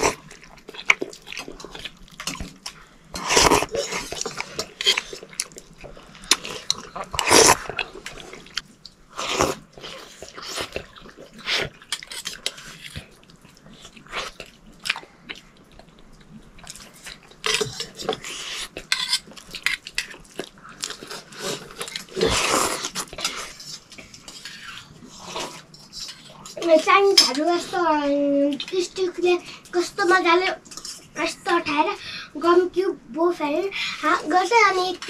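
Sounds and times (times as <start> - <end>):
man chewing: 0.0 - 26.6
slurping noodles: 3.2 - 5.3, 6.3 - 12.8, 21.0 - 23.6.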